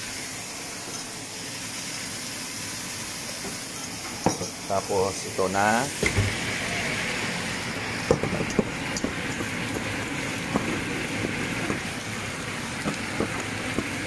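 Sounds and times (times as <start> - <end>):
vegetables sizzling in a pan: 0.0 - 14.0.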